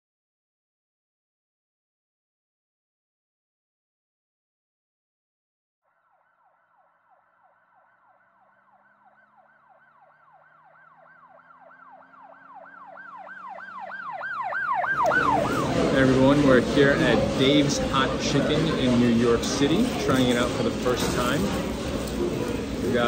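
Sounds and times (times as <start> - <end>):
siren yelping: 5.9 - 17.4.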